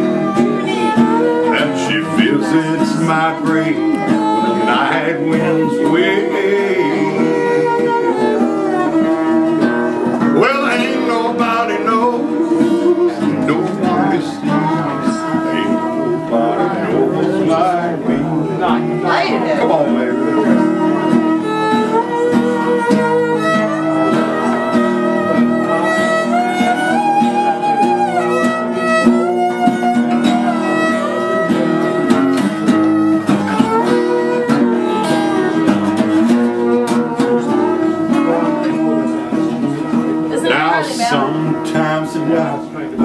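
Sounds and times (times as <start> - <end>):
strummed acoustic guitar: 0.0 - 43.0
violin melody: 0.0 - 43.0.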